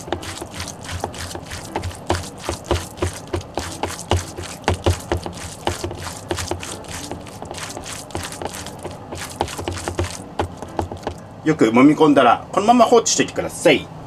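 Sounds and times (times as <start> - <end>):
hand kneading wet minced meat: 0.0 - 11.2.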